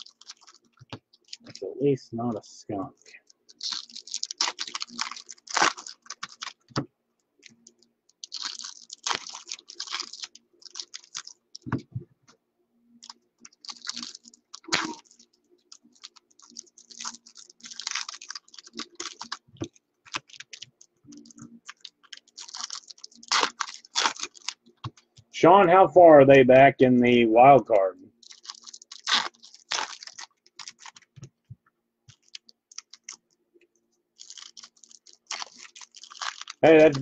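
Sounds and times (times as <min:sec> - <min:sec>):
card packaging crinkling: 0:00.0 - 0:01.6, 0:03.2 - 0:11.8, 0:12.9 - 0:25.2, 0:28.1 - 0:31.4, 0:32.1 - 0:33.4, 0:34.2 - 0:37.0.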